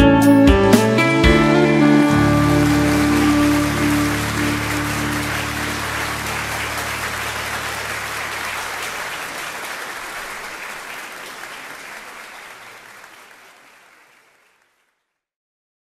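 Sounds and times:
band's held chord: 0.3s - 8.4s
audience applauding: 1.2s - 15.0s.

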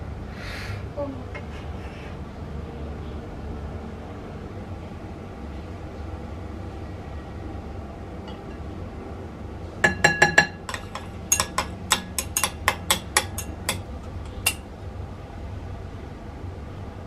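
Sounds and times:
chopsticks clinking glass bowl: 9.9s - 14.6s.

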